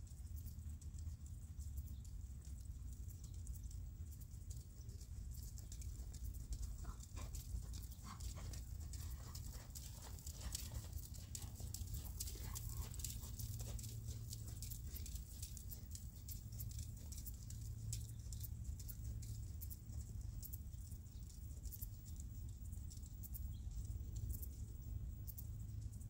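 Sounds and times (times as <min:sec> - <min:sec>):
horse hooves on sand: 0:00.0 - 0:26.0
low steady rumble: 0:00.0 - 0:26.0.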